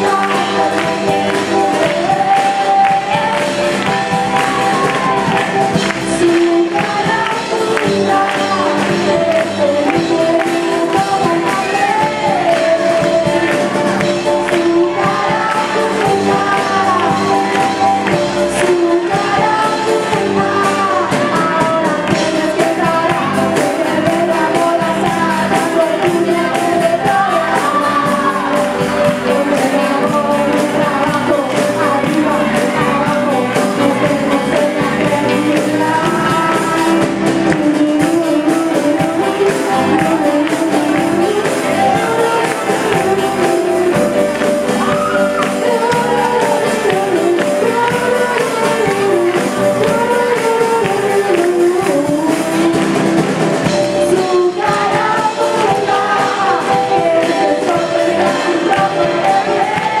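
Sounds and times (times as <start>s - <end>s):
girl singing into a microphone: 0.0s - 13.6s, 14.4s - 60.0s
drums: 0.0s - 60.0s
electric guitar: 0.0s - 60.0s
group of teenagers singing: 0.0s - 60.0s.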